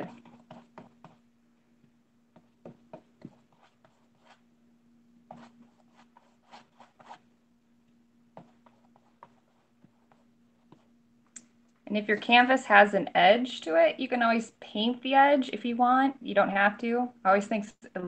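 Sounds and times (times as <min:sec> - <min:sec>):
paintbrush scratching on canvas: 0:00.0 - 0:01.2, 0:02.4 - 0:04.4, 0:05.3 - 0:07.2
faint steady hum: 0:00.0 - 0:18.0.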